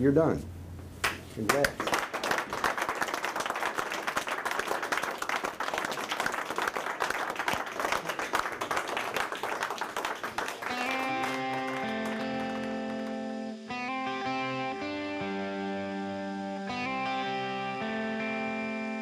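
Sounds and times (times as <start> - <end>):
people clapping: 1.0 - 13.5
guitar music: 10.6 - 19.0.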